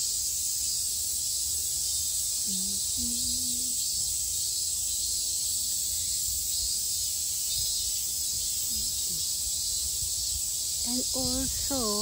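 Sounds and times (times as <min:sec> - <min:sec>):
cicadas shrilling: 0:00.0 - 0:12.0.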